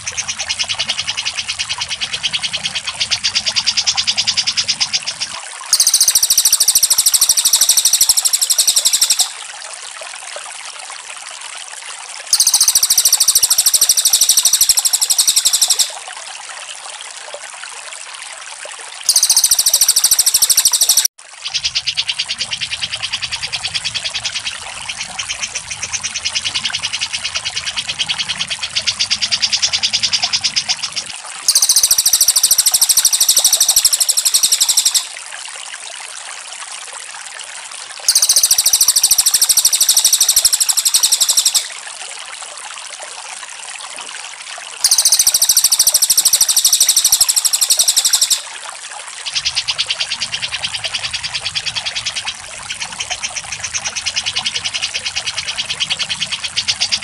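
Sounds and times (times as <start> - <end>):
bird chatter of repeated notes: 0.0 - 9.4, 12.3 - 16.0, 19.1 - 25.1, 31.5 - 35.1, 38.1 - 41.7, 44.8 - 48.5
high-pitched bird trill: 5.7 - 9.4, 12.3 - 16.0, 19.1 - 21.1, 31.5 - 35.1, 38.1 - 41.7, 44.8 - 48.5.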